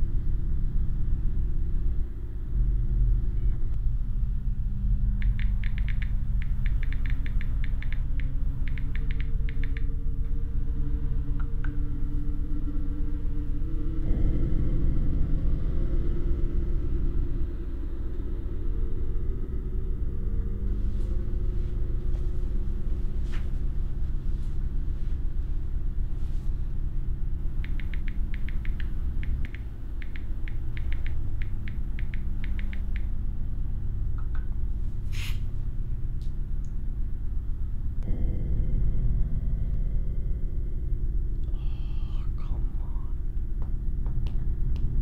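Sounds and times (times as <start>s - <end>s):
steady low drone: 0.0s - 45.0s
phone keyboard tapping: 5.2s - 9.9s, 27.6s - 33.1s.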